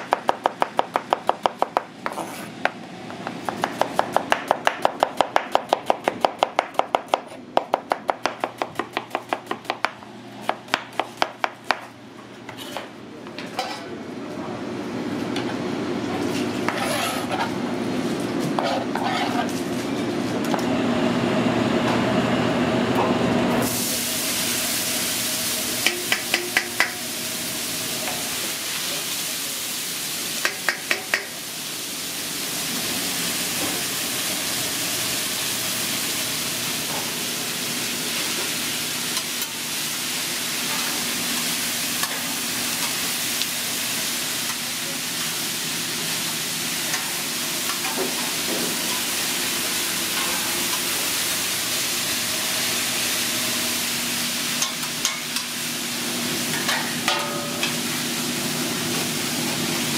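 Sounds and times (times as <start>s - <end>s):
onions sizzling on a griddle: 23.6s - 59.9s.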